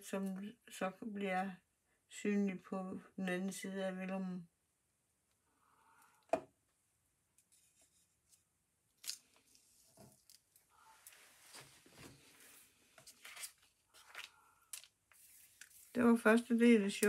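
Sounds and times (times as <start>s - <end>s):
paper rustling: 11.0s - 16.0s.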